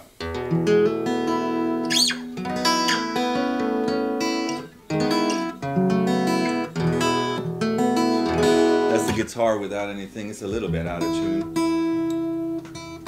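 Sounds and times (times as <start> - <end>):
acoustic guitar strumming chords: 0.2 - 9.7, 10.4 - 13.0
rising squeak: 1.9 - 3.1.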